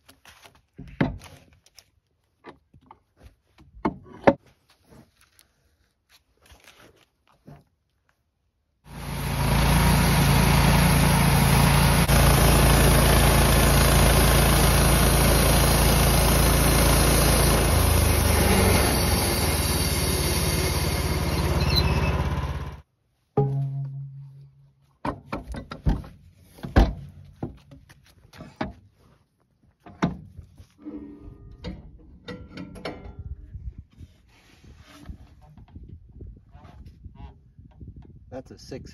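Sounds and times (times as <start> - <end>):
band sawmill running: 8.9 - 22.8.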